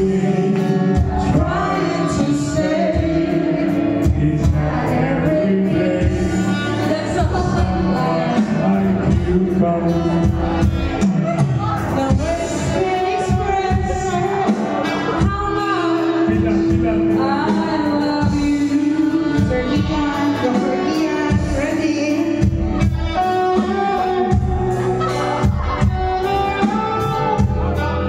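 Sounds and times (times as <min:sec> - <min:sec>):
backing track with steady beat: 0:00.0 - 0:28.0
person singing into microphone: 0:00.0 - 0:28.0.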